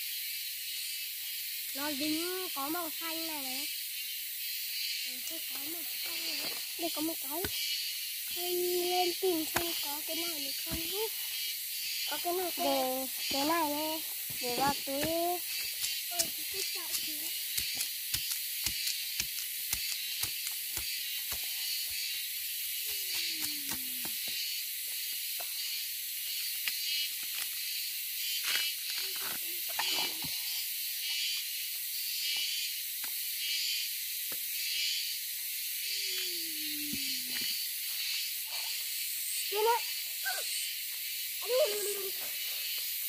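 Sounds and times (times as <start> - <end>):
high-pitched outdoor hiss: 0.0 - 43.0
sharp snaps and rustles: 14.3 - 22.1, 22.8 - 24.4.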